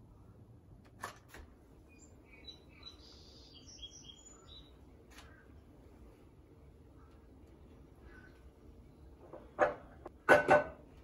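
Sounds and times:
faint bird chirps: 0:01.8 - 0:05.6.

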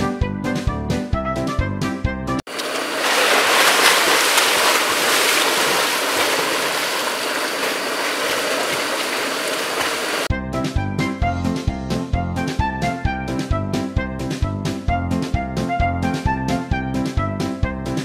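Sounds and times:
background music: 0:00.0 - 0:02.4, 0:10.3 - 0:18.0
water splashing and churning: 0:02.5 - 0:10.3.

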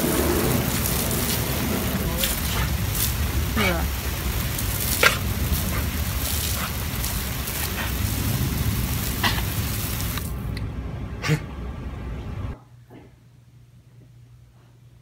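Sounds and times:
garden hose spraying water: 0:00.0 - 0:10.6
dog snapping at water: 0:04.8 - 0:07.9.

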